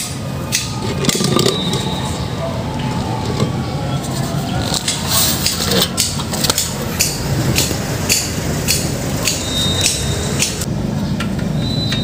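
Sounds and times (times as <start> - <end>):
high whistle: 1.4 - 2.4, 9.3 - 10.4, 11.6 - 12.0.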